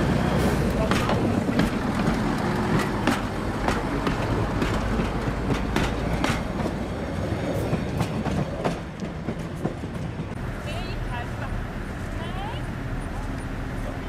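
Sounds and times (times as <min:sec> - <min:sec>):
wheels clicking over rail joints: 0:00.0 - 0:10.4
railbus engine rumble: 0:00.0 - 0:14.0.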